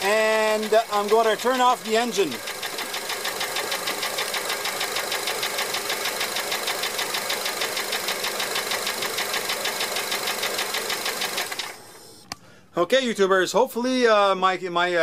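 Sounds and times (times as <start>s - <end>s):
rapid ticking knock: 0.0s - 11.6s
car engine idling: 0.0s - 11.8s.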